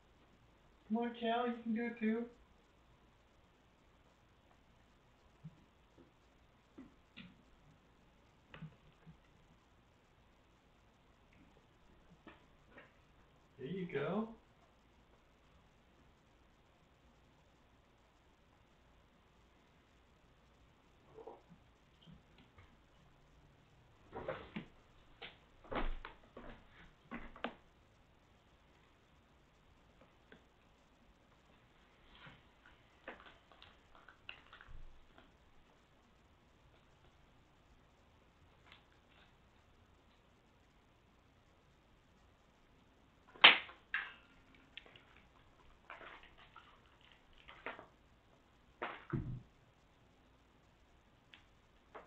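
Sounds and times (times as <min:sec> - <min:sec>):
soft rustling: 0:29.9 - 0:35.9, 0:44.2 - 0:49.5.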